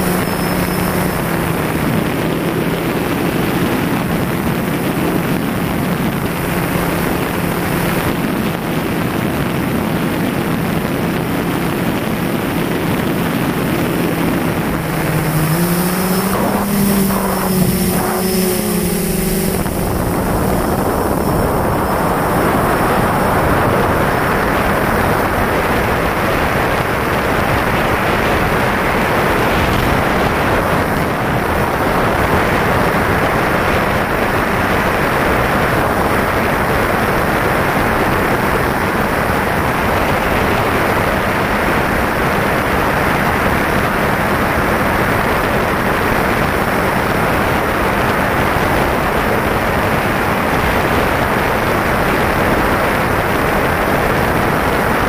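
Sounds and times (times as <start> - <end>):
rush of air: 0.0 - 32.3
propeller noise: 0.0 - 55.0.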